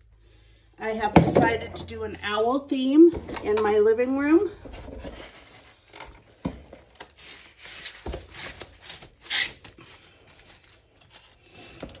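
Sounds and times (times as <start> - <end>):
packaging rustling: 4.5 - 12.0.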